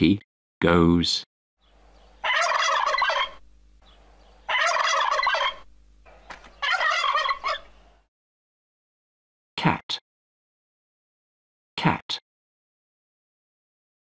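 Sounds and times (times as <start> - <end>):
faint low hum: 1.6 - 8.1
turkey gobbling: 1.8 - 8.0.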